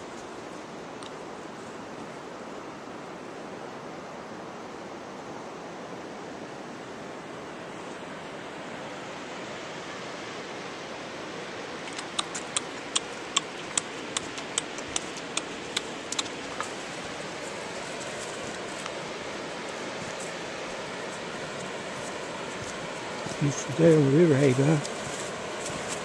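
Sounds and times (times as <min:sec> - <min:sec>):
sharp light clicks: 0:11.9 - 0:16.8.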